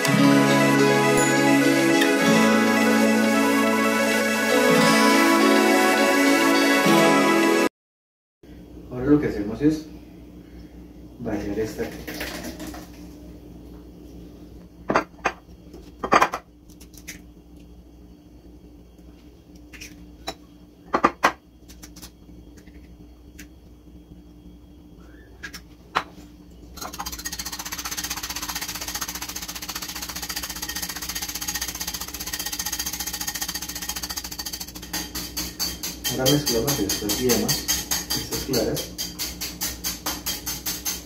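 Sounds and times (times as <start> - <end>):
whisk beating egg in ceramic bowl: 26.8 - 39.3.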